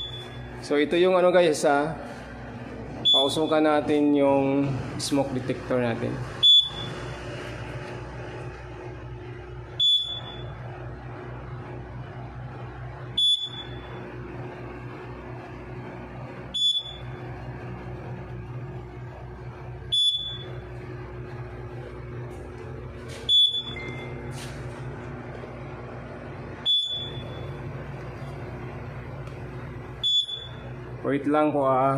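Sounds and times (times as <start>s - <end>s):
alarm panel beeping: 0.0s - 0.6s, 3.0s - 4.1s, 6.4s - 7.2s, 9.6s - 10.6s, 13.1s - 14.1s, 16.5s - 17.3s, 19.7s - 20.8s, 23.2s - 24.4s, 26.6s - 28.1s, 29.9s - 30.8s
low hum: 0.0s - 31.9s.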